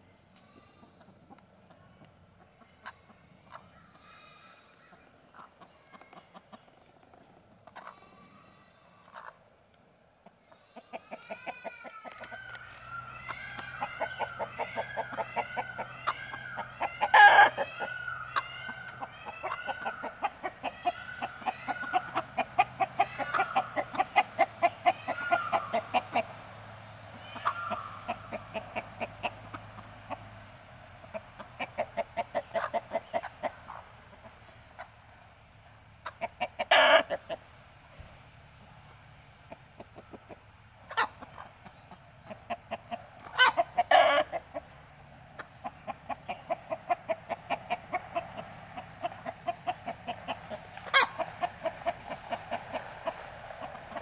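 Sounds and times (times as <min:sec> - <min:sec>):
chickens clucking: 0:00.3 - 0:09.5, 0:10.1 - 0:54.0
loud sharp chicken calls: 0:10.5 - 0:30.5, 0:31.1 - 0:34.9, 0:36.0 - 0:37.5, 0:39.5 - 0:54.0.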